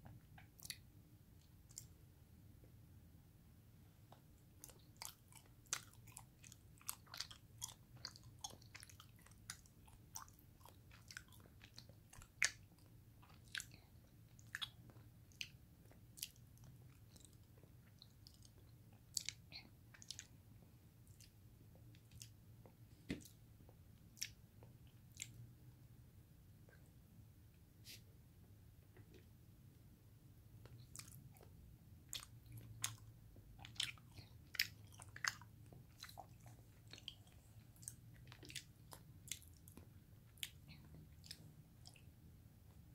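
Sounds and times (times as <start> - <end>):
close chewing mouth clicks: 0.4 - 0.8, 4.6 - 20.4, 30.6 - 31.5, 32.1 - 42.1.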